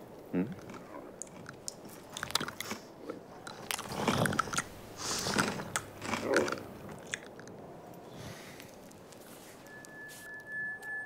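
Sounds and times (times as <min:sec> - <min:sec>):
cartoon camel chewing and crunching: 0:00.4 - 0:07.6.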